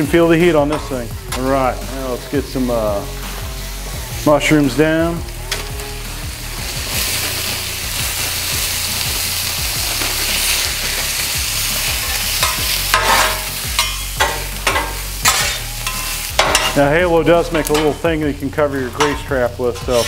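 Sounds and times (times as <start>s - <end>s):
vegetables sizzling on a griddle: 0.4s - 20.0s
metal spatulas scraping a griddle: 11.8s - 18.1s, 18.8s - 20.0s.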